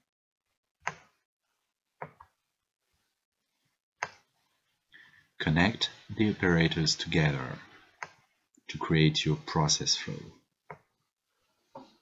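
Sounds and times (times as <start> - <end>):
computer mouse clicks: 0.8 - 1.1.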